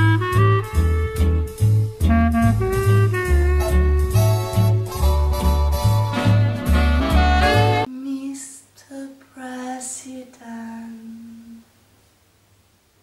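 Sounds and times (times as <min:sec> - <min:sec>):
swing jazz with heavy bass: 0:00.0 - 0:07.9
woman singing wordless phrase: 0:07.9 - 0:11.7.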